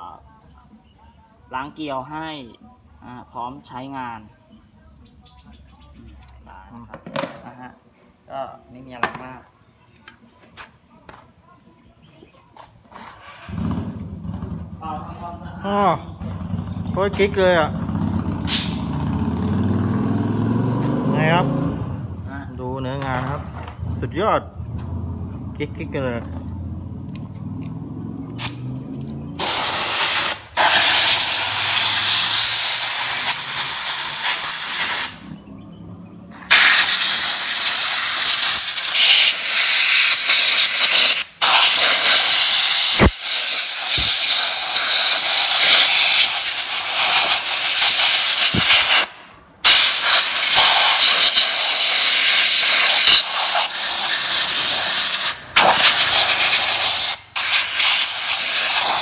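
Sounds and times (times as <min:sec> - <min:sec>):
compressed air blow gun hissing: 0:29.4 - 0:35.3, 0:36.5 - 0:59.0.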